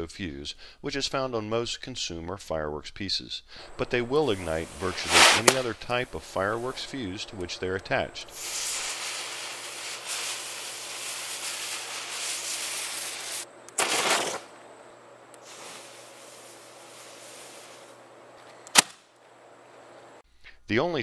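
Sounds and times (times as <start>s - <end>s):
fuse burning with a hiss: 3.5s - 18.8s
fuse flaring with a rush: 3.6s - 13.5s.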